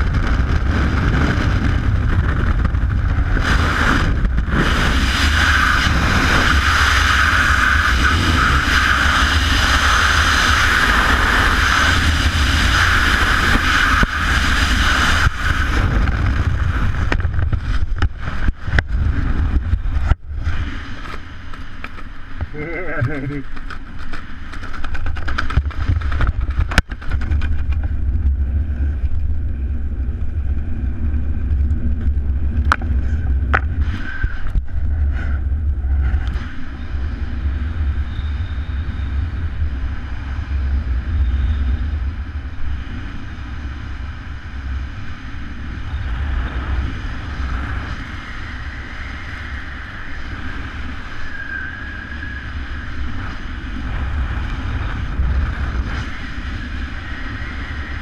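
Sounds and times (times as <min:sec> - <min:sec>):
wind buffeting microphone: 0:00.0 - 0:58.0
faint whistle: 0:37.9 - 0:39.4, 0:41.0 - 0:42.0, 0:51.2 - 0:52.6.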